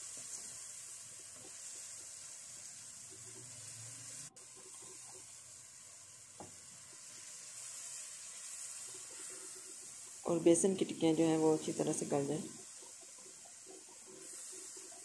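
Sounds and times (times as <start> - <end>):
curry sizzling in a pan: 0.0 - 15.0
spatula stirring: 11.7 - 15.0.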